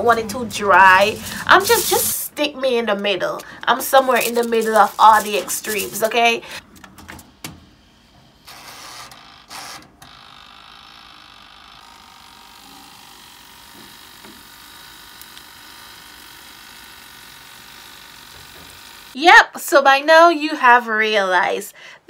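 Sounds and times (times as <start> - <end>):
dials scraping as turned: 3.3 - 6.9.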